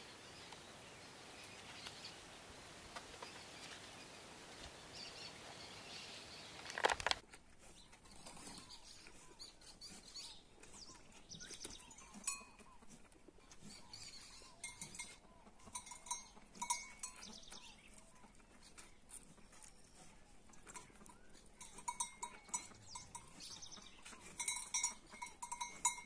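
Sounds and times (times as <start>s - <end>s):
high bird calls: 0.0s - 7.2s
metal livestock bells clinking: 11.8s - 12.8s, 14.4s - 17.8s, 20.6s - 26.0s.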